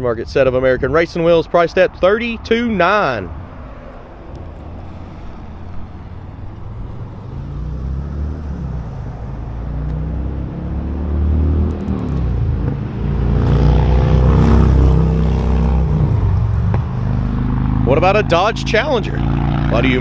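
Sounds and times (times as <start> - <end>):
vehicle engine running low: 1.9 - 20.0.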